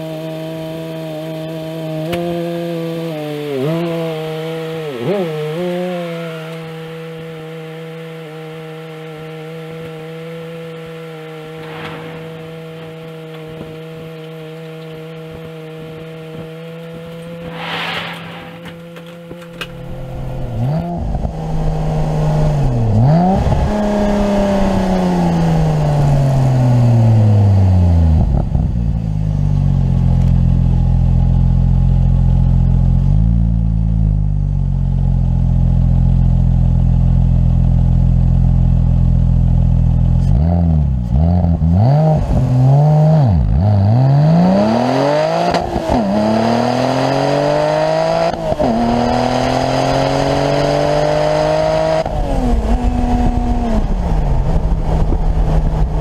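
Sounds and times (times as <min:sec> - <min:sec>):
car engine revving: 0:00.6 - 0:28.5, 0:40.2 - 0:56.0.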